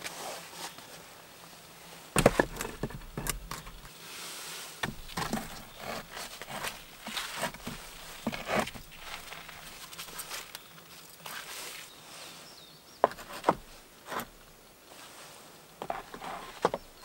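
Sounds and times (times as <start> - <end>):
stones knocking and scraping: 2.2 - 3.9, 4.8 - 11.5, 13.0 - 14.4, 15.8 - 17.0.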